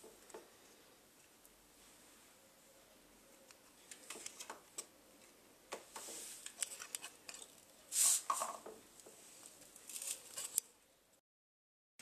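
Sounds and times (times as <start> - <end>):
plastic rustle: 9.3 - 10.6.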